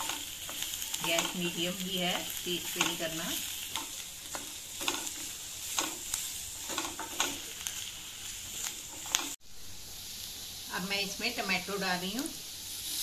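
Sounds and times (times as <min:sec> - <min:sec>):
vegetables sizzling in oil: 0:00.0 - 0:13.0
spatula scraping and tapping pan: 0:02.2 - 0:07.8, 0:08.6 - 0:09.4.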